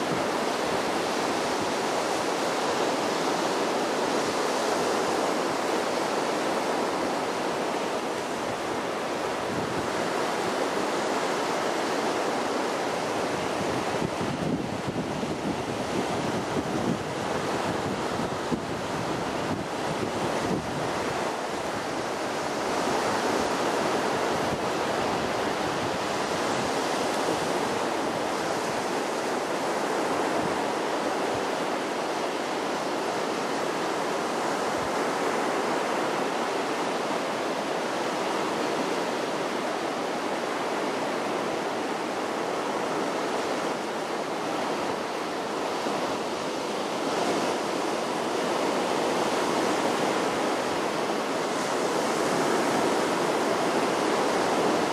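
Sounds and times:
sea surf washing on shore: 0.0 - 54.9.

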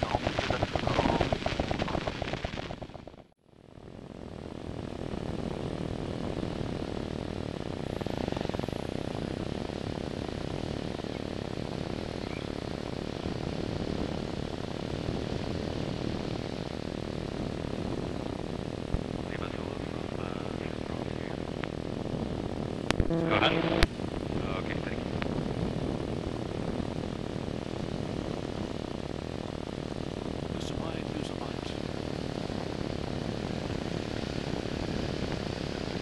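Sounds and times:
light aircraft engine drone: 0.0 - 36.0.

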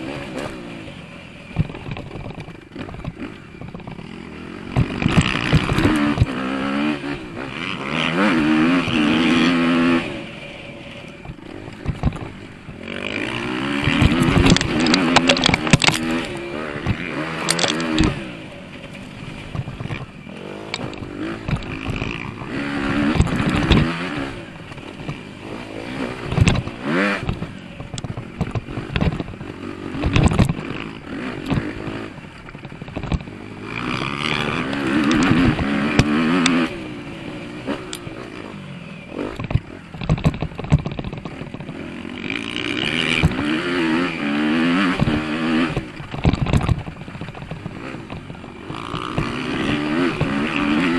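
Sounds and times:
motocross bike engine revving: 0.0 - 50.9
bike knocking over bumps: 4.6 - 6.4, 11.2 - 18.3, 19.4 - 25.2, 25.9 - 36.7, 39.3 - 50.9.

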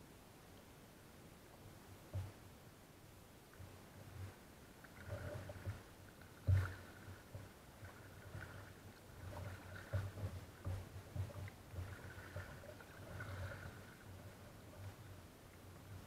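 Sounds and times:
low thuds on kayak: 2.1 - 2.4, 6.4 - 6.8
paddle strokes and splashes: 3.6 - 16.0.

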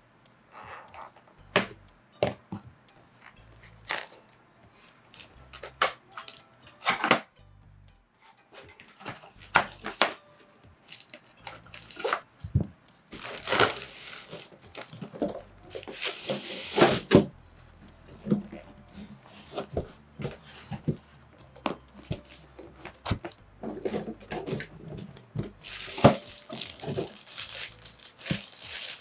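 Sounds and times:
cardboard flaps tearing and knocking: 12.1 - 17.3, 25.8 - 27.6
blade scraping paper seal: 15.8 - 17.1.

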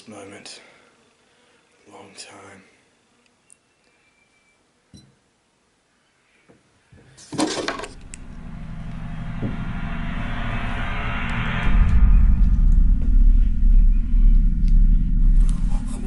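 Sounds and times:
engine starting and running: 7.6 - 16.0
heavy low rumble: 7.9 - 16.0.

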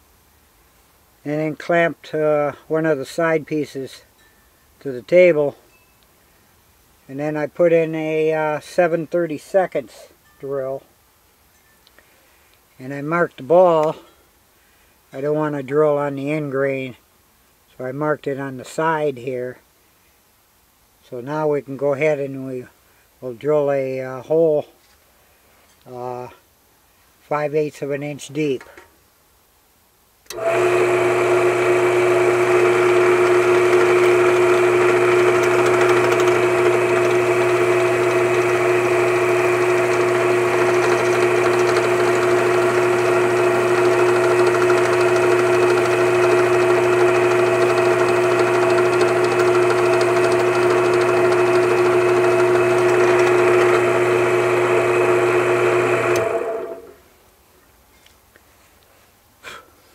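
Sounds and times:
drill bit boring into wood: 30.3 - 57.0
drill press motor humming: 30.3 - 57.0.

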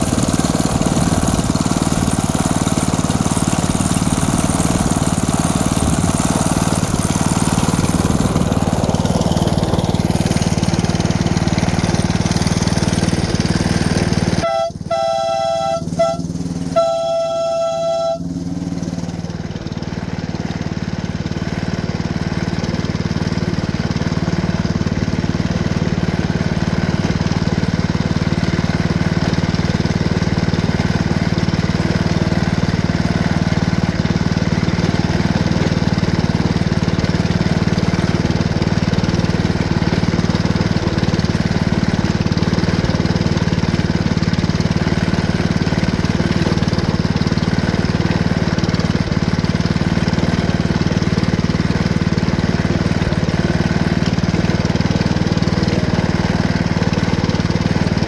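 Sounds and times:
small gasoline engine running: 0.0 - 58.0
horn blasts: 14.4 - 18.8.

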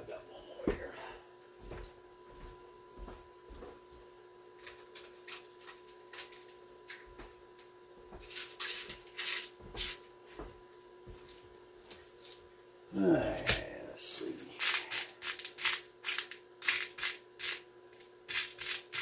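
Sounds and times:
screws clicking and rattling: 14.6 - 17.6, 18.3 - 19.0.

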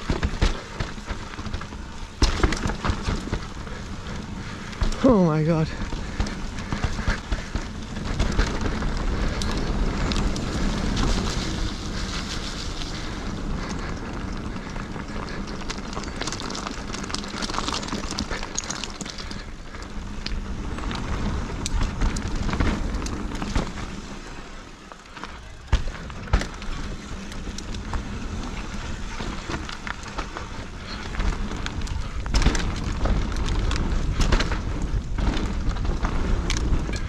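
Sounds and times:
wind buffeting microphone: 0.0 - 24.5
bike tyres crunching on stones: 0.0 - 37.0.

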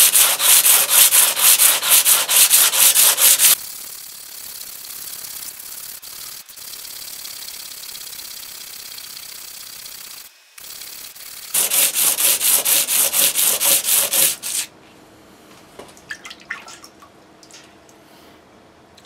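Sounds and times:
stone scraping on sandpaper: 0.0 - 3.6, 11.5 - 14.7.

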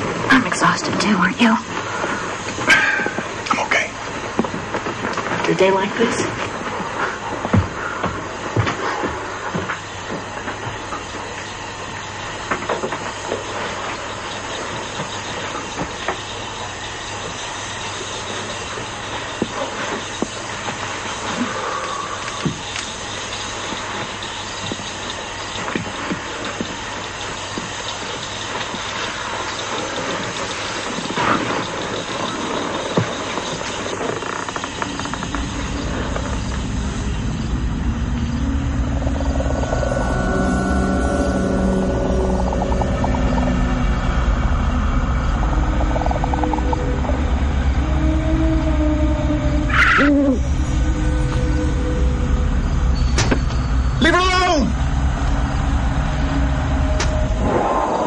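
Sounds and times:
steady hissing noise: 0.0 - 58.0
steady rushing noise: 0.0 - 58.0
low sustained music notes: 35.2 - 58.0.

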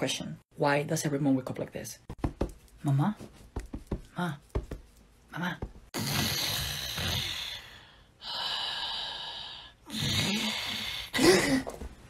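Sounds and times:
person snoring: 6.0 - 11.4.

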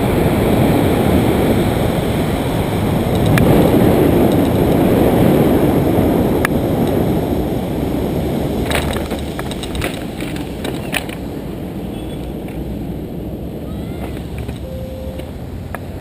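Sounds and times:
wind rushing over microphone: 0.0 - 16.0
clicks and rustles of paraglider wing: 8.6 - 11.3.

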